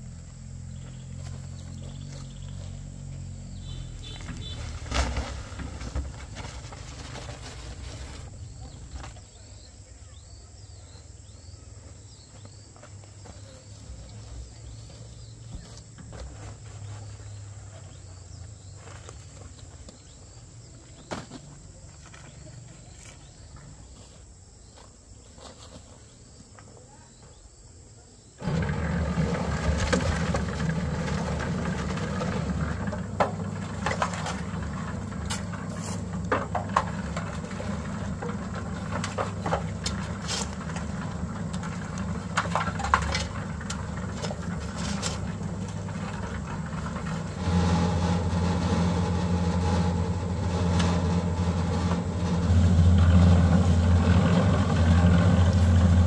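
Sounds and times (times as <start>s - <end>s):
loud steady engine: 0.0s - 9.1s, 28.4s - 56.0s
faint insect chirping: 0.0s - 28.4s
low hum: 28.4s - 56.0s.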